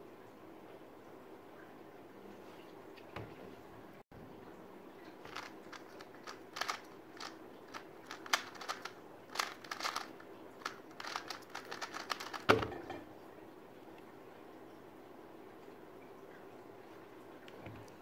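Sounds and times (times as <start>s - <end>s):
plastic cube clicking: 5.3s - 12.6s
cube thud on table: 11.0s - 12.8s.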